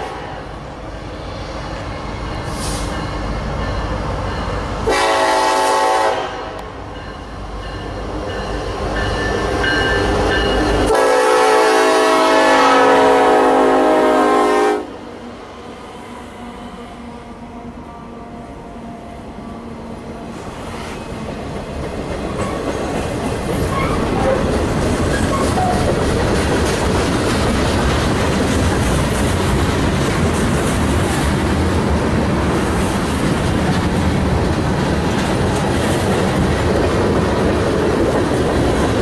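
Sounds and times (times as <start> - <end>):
train horn blasts: 0.0 - 0.5, 4.8 - 6.8, 10.8 - 15.0
diesel locomotive engine rumbling: 0.0 - 39.0
freight cars rolling on rails: 19.8 - 39.0.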